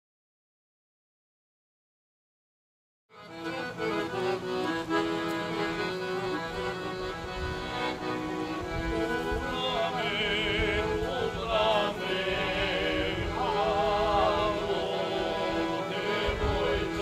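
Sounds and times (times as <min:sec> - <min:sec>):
accordion chords: 0:03.1 - 0:17.0
men singing with vibrato: 0:08.7 - 0:17.0.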